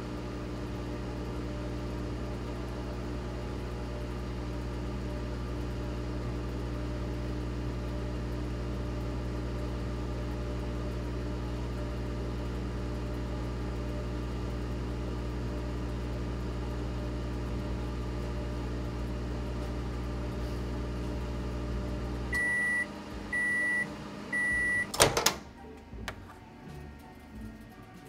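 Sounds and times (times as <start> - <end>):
microwave oven humming: 0.0 - 28.0
microwave beeps: 22.3 - 25.4
microwave door clacking open: 24.9 - 25.5.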